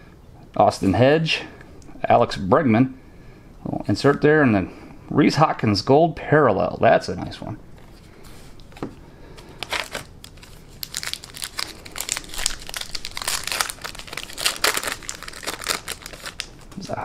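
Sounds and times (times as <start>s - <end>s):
plastic wrapper crinkling and tearing: 8.6s - 17.0s.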